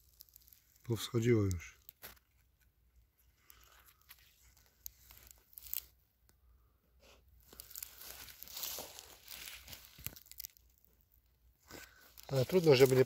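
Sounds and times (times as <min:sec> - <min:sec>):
footsteps crunching on dry stubble: 0:03.8 - 0:05.9, 0:07.4 - 0:10.7, 0:11.7 - 0:13.0.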